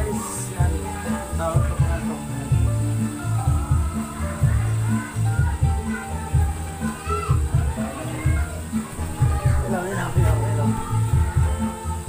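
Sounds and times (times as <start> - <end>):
music with heavy bass beat: 0.0 - 12.0.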